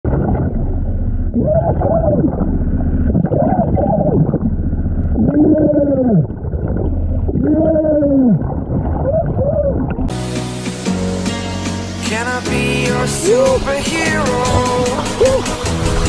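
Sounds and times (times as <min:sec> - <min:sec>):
low rumble: 0:00.0 - 0:10.1
muffled underwater whoops: 0:01.3 - 0:02.3, 0:05.2 - 0:06.3, 0:07.4 - 0:09.9, 0:14.7 - 0:15.6.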